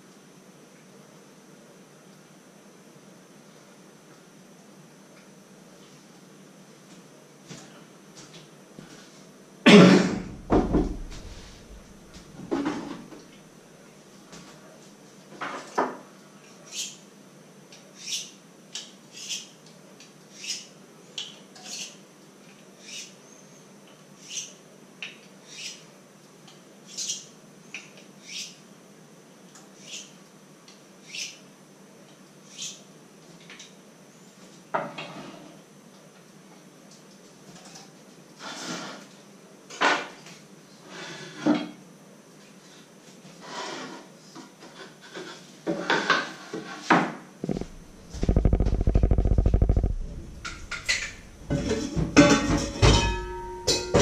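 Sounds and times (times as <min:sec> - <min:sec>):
knocks on wooden cutting board: 0:10.2 - 0:11.4.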